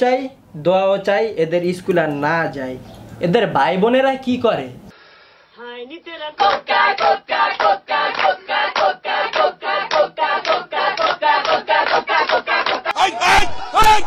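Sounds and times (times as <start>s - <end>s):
group singing together: 6.1s - 13.8s
rhythmic hand clapping: 6.4s - 13.0s.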